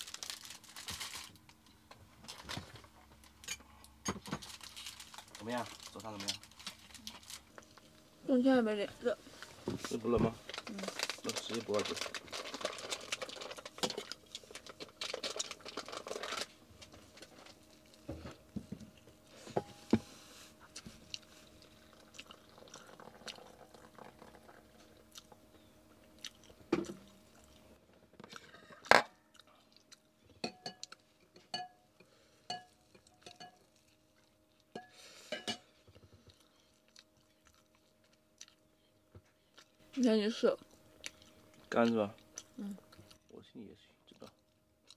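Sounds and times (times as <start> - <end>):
plastic packaging crinkling: 0.0 - 3.4, 4.2 - 7.9, 9.9 - 18.0
people chewing and crunching: 2.3 - 8.0, 9.3 - 19.5, 20.5 - 39.9, 40.5 - 43.4, 44.0 - 44.9
dishes and cutlery clinking: 30.4 - 31.8, 32.5 - 33.6, 34.7 - 35.7.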